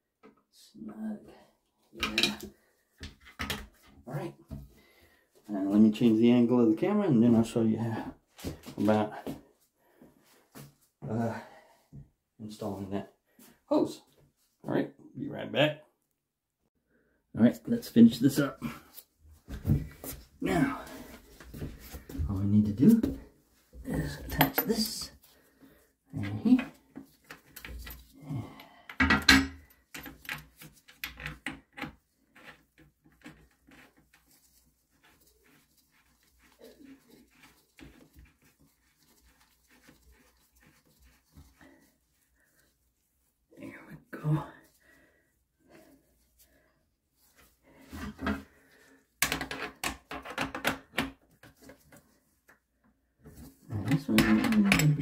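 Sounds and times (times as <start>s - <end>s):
metal hose fittings clinking: 26.7s - 28.2s.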